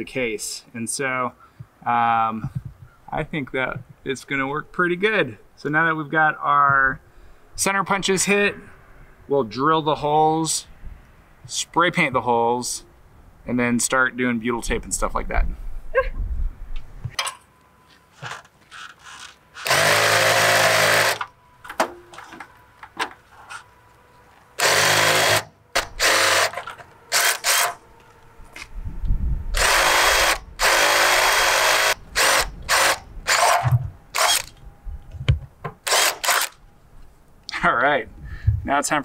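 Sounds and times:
power drill boring sheet metal: 19.0 - 21.3, 24.6 - 27.8, 29.6 - 34.5.

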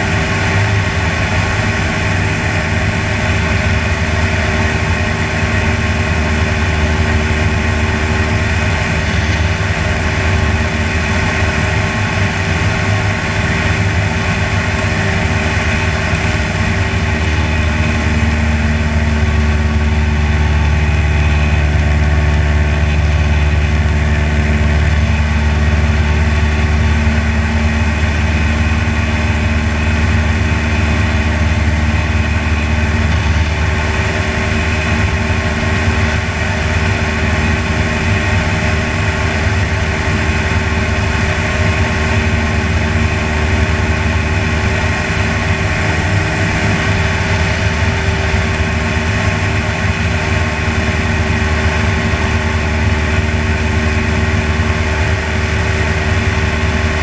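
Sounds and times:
light aircraft engine hum: 0.0 - 57.0.

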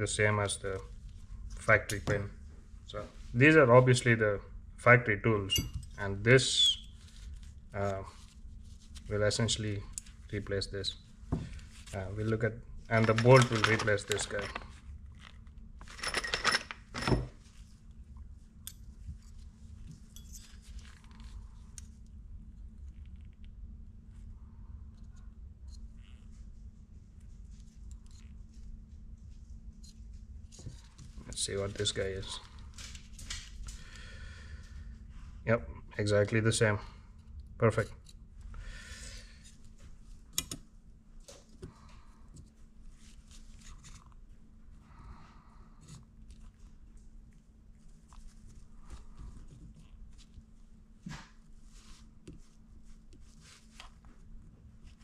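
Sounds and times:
metal tools clinking and rattling: 12.9 - 14.8, 15.8 - 17.4
faint taps and scrapes: 51.0 - 55.0.

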